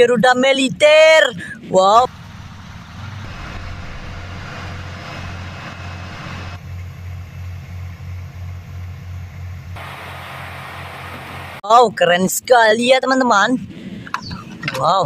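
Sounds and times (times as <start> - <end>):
heavy truck engines rumbling: 1.4 - 11.6
steady hiss: 9.8 - 11.6.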